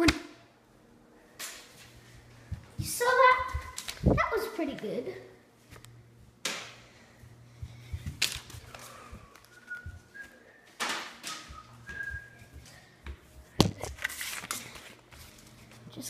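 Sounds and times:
soft whistling: 9.4s - 12.5s.

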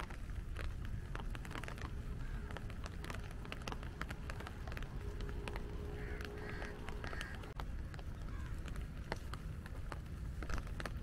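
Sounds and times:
rain pattering on umbrella: 0.0s - 11.0s
steady low rumble: 0.0s - 11.0s
crows cawing: 0.9s - 3.2s, 4.7s - 7.6s, 8.2s - 8.6s.

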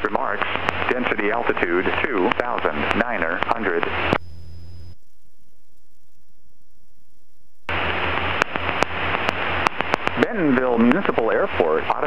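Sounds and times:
automated weather broadcast: 0.0s - 5.0s, 7.7s - 12.0s
radio static hiss: 0.0s - 5.0s, 7.7s - 12.0s
low hum: 0.0s - 12.0s
radio clicks: 0.4s - 1.0s, 2.2s - 4.3s, 8.2s - 10.3s.

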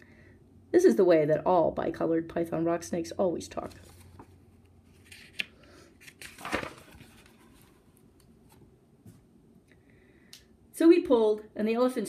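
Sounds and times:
page turning rustle: 3.5s - 8.6s.

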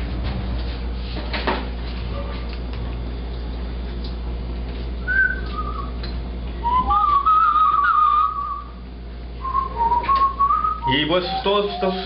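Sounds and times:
person whistling a tune: 5.0s - 6.0s, 6.6s - 8.8s, 9.4s - 12.0s.

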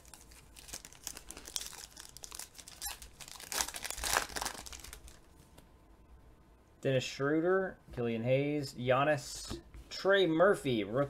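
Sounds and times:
foil wrapper tearing and crinkling: 0.0s - 5.3s.

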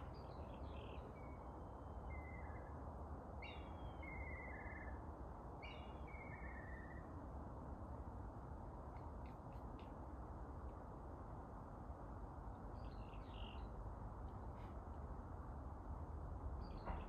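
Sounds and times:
songbird singing warbling trill: 0.0s - 2.8s, 3.4s - 7.1s, 12.7s - 13.8s.

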